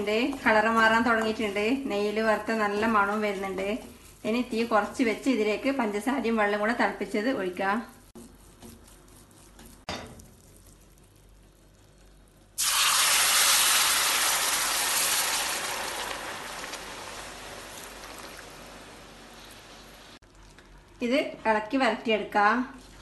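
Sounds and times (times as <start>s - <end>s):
wooden spoon scraping: 0.0s - 11.5s
syrup sizzling in a pan: 12.5s - 20.2s.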